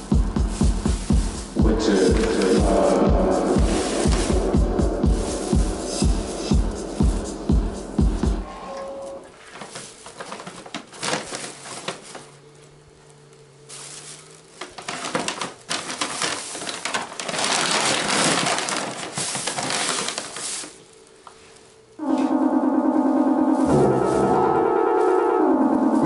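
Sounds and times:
faint steady hum: 0:00.0 - 0:26.0
plastic bags crinkling: 0:02.0 - 0:03.0, 0:09.1 - 0:22.0.

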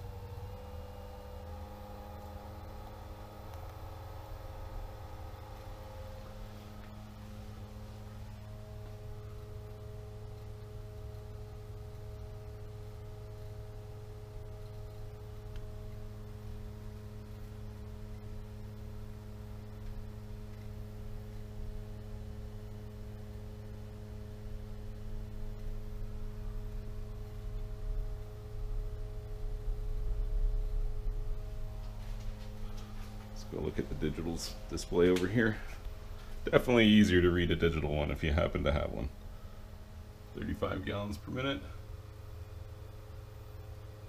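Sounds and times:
pool pump humming: 0:00.0 - 0:44.0
low rumble: 0:25.0 - 0:41.0.

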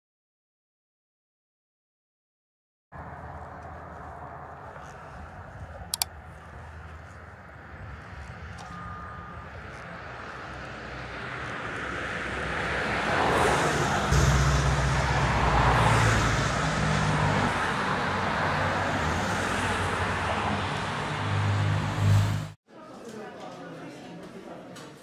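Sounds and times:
road traffic passing: 0:02.9 - 0:22.6
low engine drone: 0:03.0 - 0:22.6.

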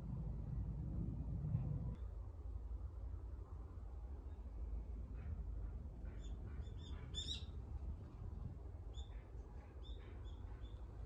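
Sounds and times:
steady low rumble: 0:00.0 - 0:11.0
birds chirping: 0:06.0 - 0:07.6.

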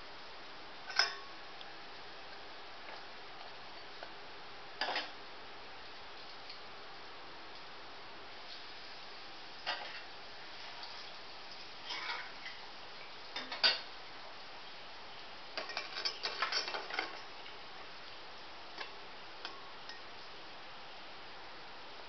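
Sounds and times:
faint hiss: 0:00.0 - 0:22.0
steel spoon clinking on pot: 0:00.9 - 0:01.3.

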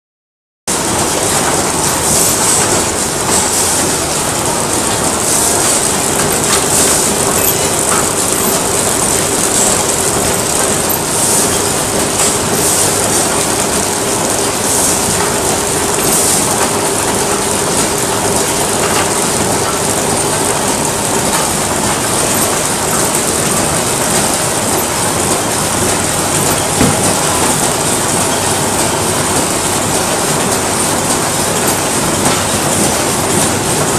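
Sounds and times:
packaging machine running: 0:00.7 - 0:33.9.

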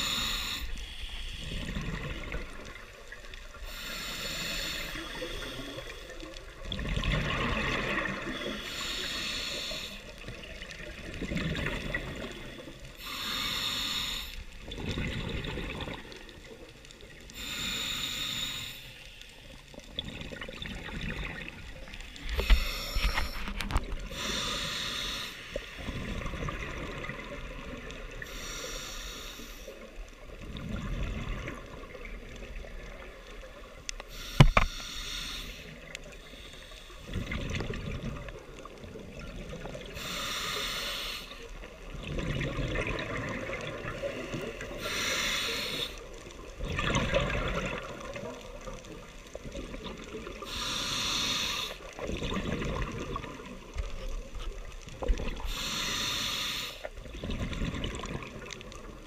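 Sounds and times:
diver breathing through regulator: 0:00.0 - 0:02.2, 0:03.6 - 0:06.3, 0:07.3 - 0:10.2, 0:13.0 - 0:14.6, 0:17.3 - 0:19.2, 0:22.1 - 0:25.9, 0:28.2 - 0:29.9, 0:34.0 - 0:37.4, 0:39.8 - 0:41.7, 0:43.9 - 0:46.2, 0:50.4 - 0:52.0, 0:55.3 - 0:57.0
rumble of bubbles: 0:01.2 - 0:03.8, 0:05.0 - 0:08.5, 0:10.1 - 0:13.0, 0:14.5 - 0:17.3, 0:19.5 - 0:24.3, 0:25.8 - 0:28.3, 0:30.1 - 0:33.9, 0:37.0 - 0:40.0, 0:41.8 - 0:44.8, 0:46.2 - 0:50.5, 0:52.0 - 0:55.6, 0:57.0 - 0:59.0.

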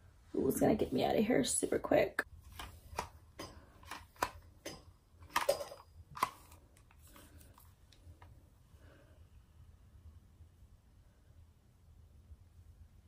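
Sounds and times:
soft clicks and rustles: 0:02.4 - 0:08.4.

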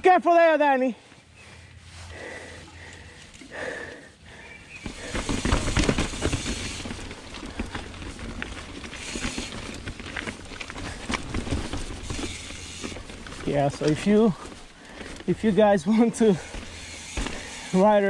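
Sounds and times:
bike clattering: 0:04.6 - 0:18.0
rush of riding noise: 0:04.6 - 0:18.0
bike tyres rattling over rocks: 0:04.7 - 0:18.0.

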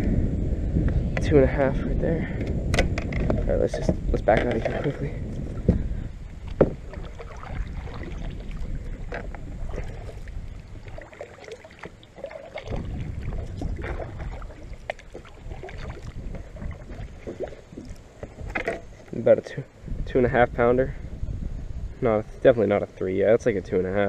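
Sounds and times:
wind rumbling on microphone: 0:00.0 - 0:24.0
knocks and clicks on hull: 0:02.4 - 0:05.8, 0:06.4 - 0:19.1
water splashing and sloshing: 0:02.7 - 0:19.3.

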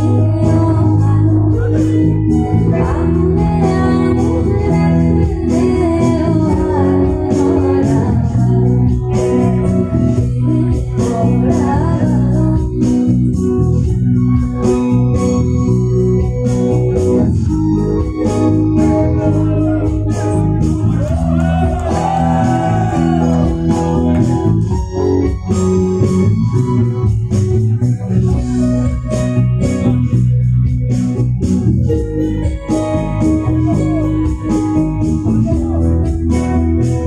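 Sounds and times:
bass guitar: 0:00.0 - 0:37.0
electric guitar: 0:00.0 - 0:37.0
keyboard chords: 0:00.0 - 0:37.0
gliding melody line: 0:15.0 - 0:37.0.

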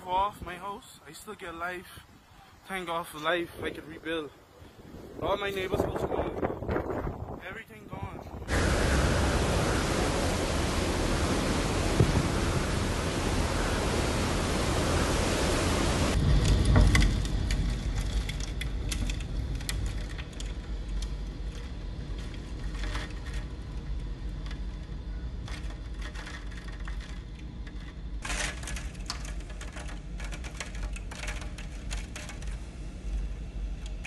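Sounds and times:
wind roaring: 0:00.0 - 0:34.0
wind buffeting microphone: 0:03.3 - 0:25.5
driving rain: 0:08.4 - 0:24.7, 0:25.5 - 0:34.0
sharp ticks and crackles: 0:16.2 - 0:34.0.

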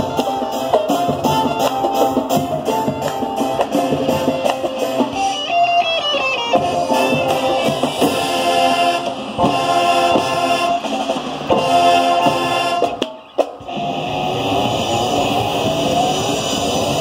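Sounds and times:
marching band playing chords: 0:00.0 - 0:17.0.

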